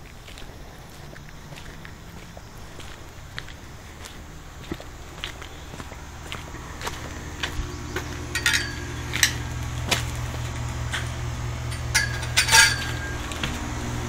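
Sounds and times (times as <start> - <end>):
footsteps on wooden stairs: 0.0 - 11.2
steady low hum: 0.0 - 14.0
sharp metallic clinks: 6.5 - 13.6.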